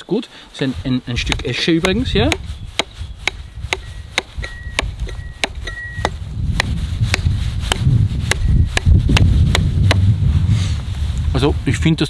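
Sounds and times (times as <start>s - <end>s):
hatchet chopping wood: 1.2s - 10.0s
low rumble: 3.4s - 11.8s.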